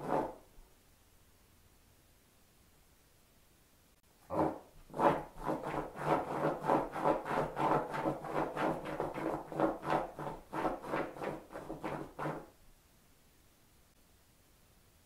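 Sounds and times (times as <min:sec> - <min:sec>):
dog paws scraping rug: 0:04.2 - 0:12.5.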